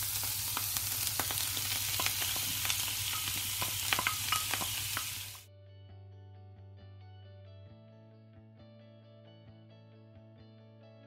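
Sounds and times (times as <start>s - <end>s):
mushrooms sizzling in frying pan: 0.0s - 5.5s.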